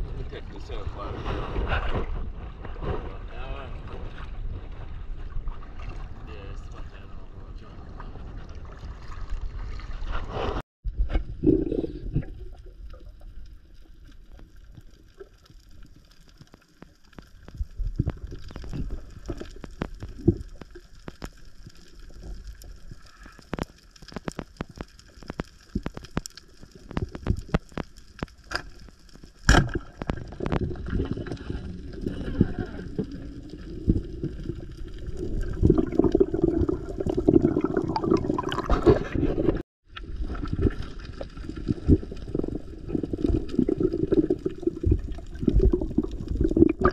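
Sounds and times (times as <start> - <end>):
water sloshing and gurgling: 0.0 - 46.9
underwater clicks: 15.9 - 31.5.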